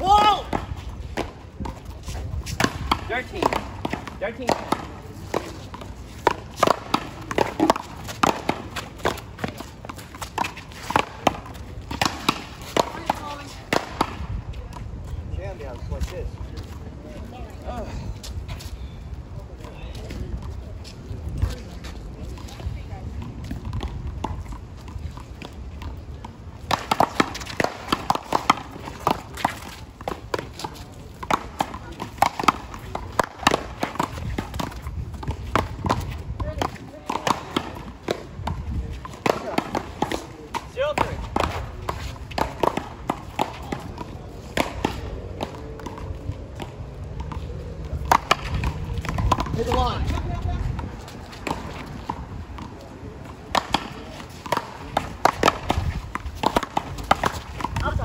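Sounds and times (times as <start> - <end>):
ball smacking paddles and wall: 0.0 - 14.9, 21.3 - 58.0
ball bouncing off concrete wall: 53.4 - 58.0.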